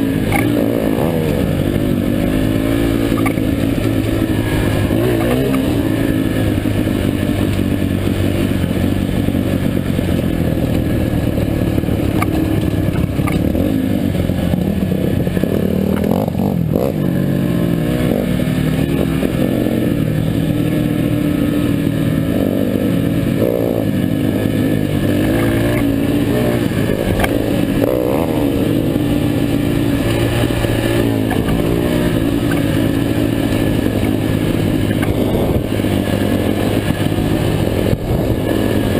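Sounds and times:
dirt bike engine running hard: 0.0s - 38.9s.

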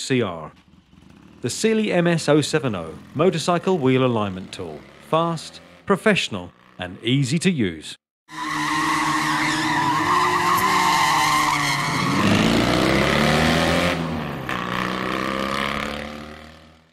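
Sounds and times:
tyres squealing: 8.3s - 12.8s
car engine revving: 8.3s - 16.9s.

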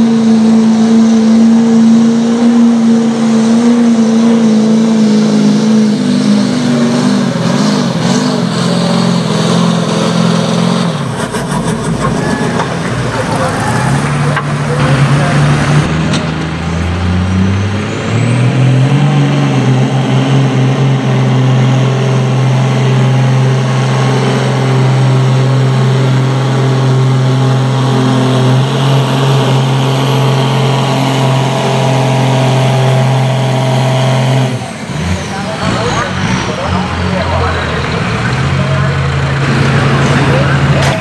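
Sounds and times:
diesel truck engine under load: 0.0s - 41.0s
turbo whistle: 12.0s - 12.8s.

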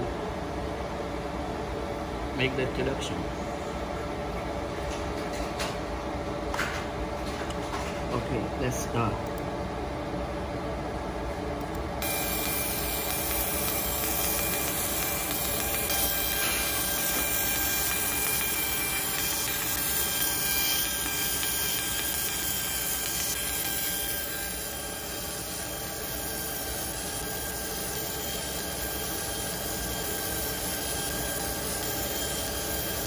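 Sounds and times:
faint high steady tones: 12.0s - 33.0s
laser machine hiss and hum: 12.0s - 33.0s.

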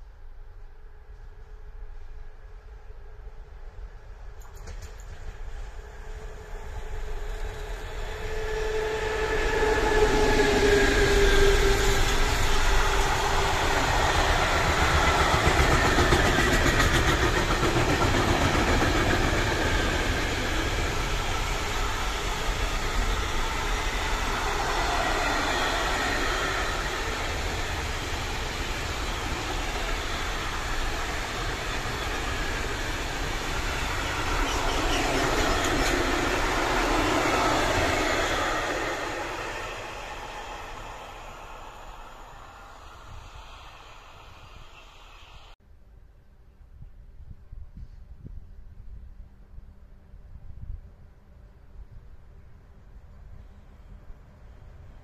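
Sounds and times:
train wheels rumbling on rails: 0.7s - 45.6s
locomotive whine: 5.2s - 45.6s.

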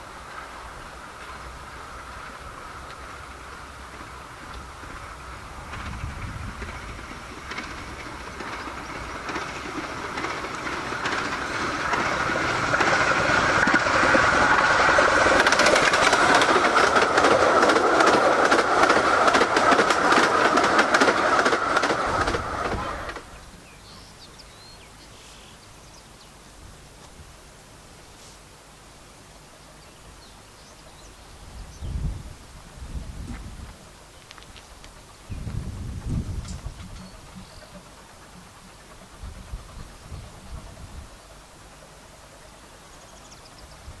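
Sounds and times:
miniature steam train clattering: 0.0s - 24.0s, 33.0s - 44.0s
faint outdoor ambience: 0.0s - 44.0s.

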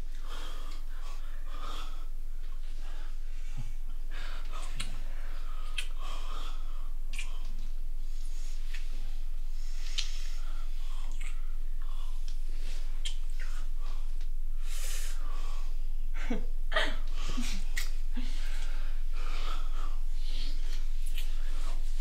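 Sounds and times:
people breathing heavily: 0.1s - 22.0s
kissing: 5.6s - 6.0s, 7.1s - 7.6s, 9.8s - 10.2s, 11.1s - 11.5s, 13.0s - 13.6s, 17.6s - 18.0s.

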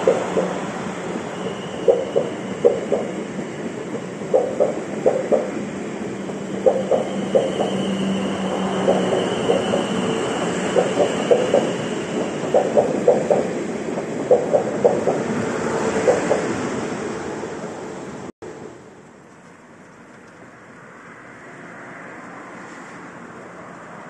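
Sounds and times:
train wheels clicking over rail joints: 0.0s - 16.7s
train rolling rumble: 0.0s - 20.5s.

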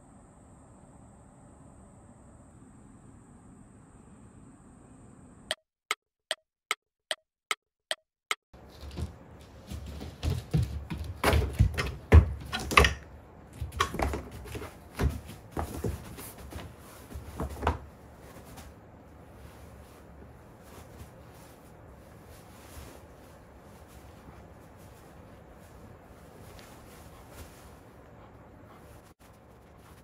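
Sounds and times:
paws and feet thumping on mats: 8.6s - 30.0s
shuffling: 8.6s - 30.0s.

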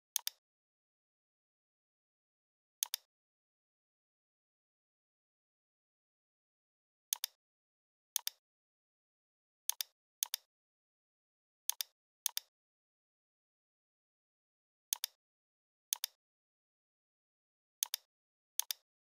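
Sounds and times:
computer mouse button clicking: 17.8s - 18.8s.

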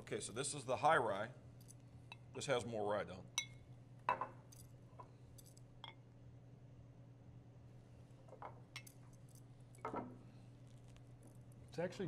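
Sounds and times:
low room hum: 0.0s - 12.0s
glasses clinking on table: 3.4s - 4.4s, 9.8s - 10.2s.

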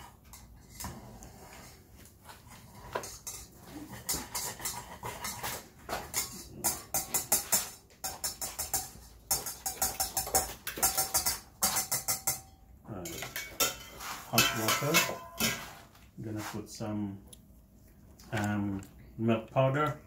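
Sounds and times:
whisk clattering in metal pot: 3.0s - 12.5s, 13.1s - 15.8s.

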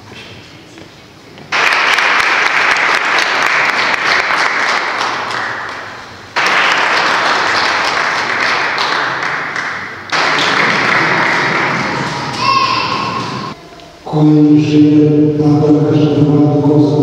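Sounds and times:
audience applauding: 1.5s - 13.6s.

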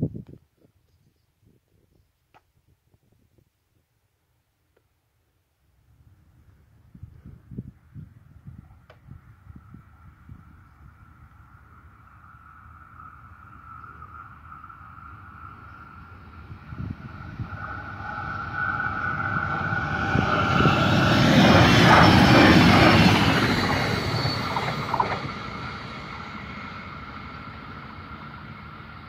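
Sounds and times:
train whine: 9.2s - 29.0s
train wheels rumbling on rails: 15.0s - 29.0s.

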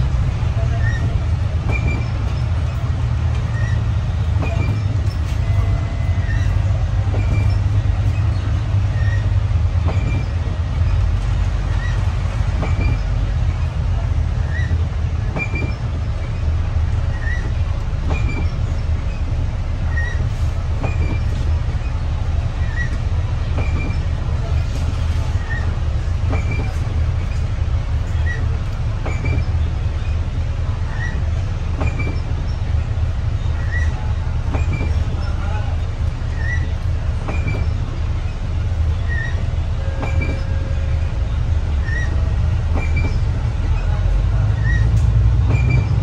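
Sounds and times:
vehicle rumbling: 0.0s - 46.0s.

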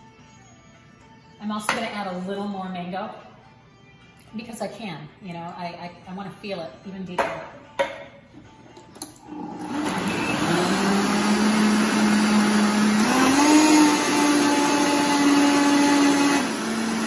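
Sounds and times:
blender motor running: 9.2s - 17.0s.

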